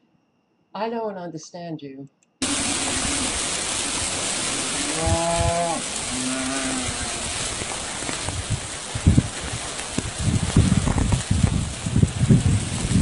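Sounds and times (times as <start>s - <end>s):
rushing water: 2.4s - 13.0s
wind: 2.4s - 13.0s
cattle mooing: 4.8s - 7.6s.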